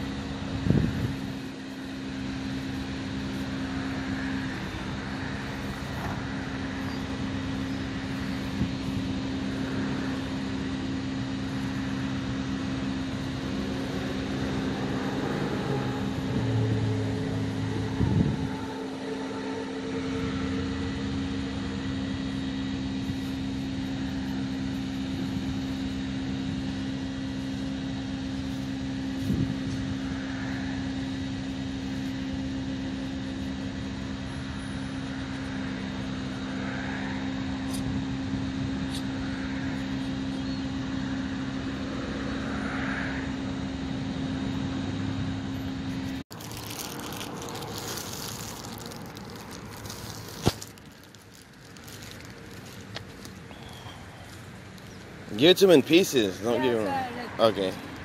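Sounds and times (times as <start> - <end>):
low mechanical hum: 0.0 - 58.0.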